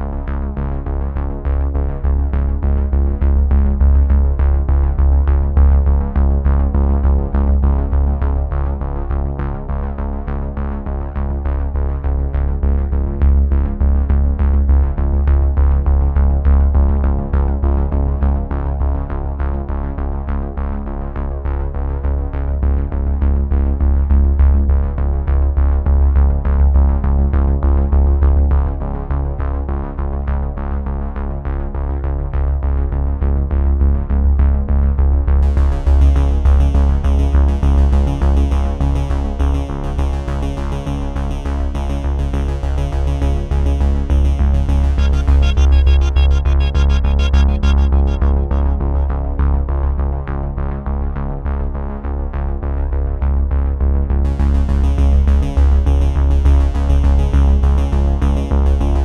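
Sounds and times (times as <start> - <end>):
electronic music with heavy bass: 35.4 - 50.3, 54.3 - 59.0.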